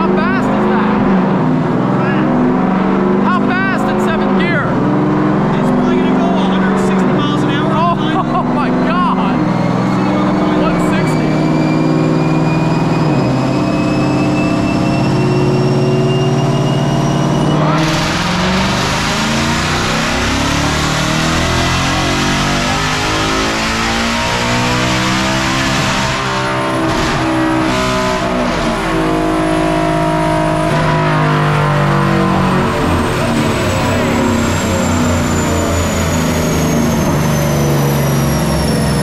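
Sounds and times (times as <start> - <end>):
car engine running hard: 0.0 - 39.0
supercharger whine: 0.0 - 39.0
loud rushing noise: 17.1 - 23.1, 24.0 - 35.4.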